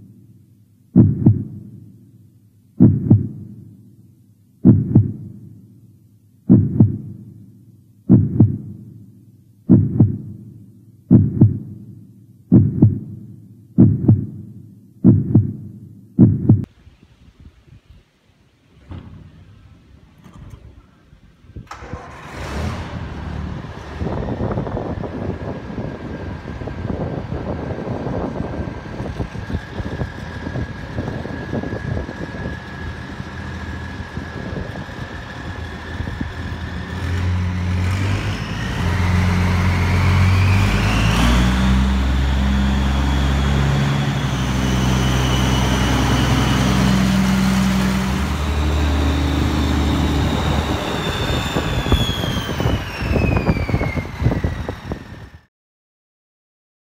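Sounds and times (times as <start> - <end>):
tractor diesel engine revving: 18.7 - 55.4
turbo whistle: 49.8 - 55.4.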